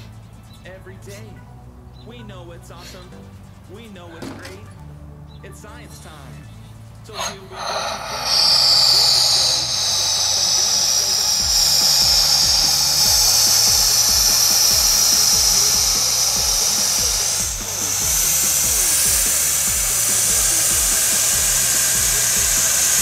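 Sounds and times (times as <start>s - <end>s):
gas hissing into balloon: 0.0s - 0.3s, 7.1s - 23.0s.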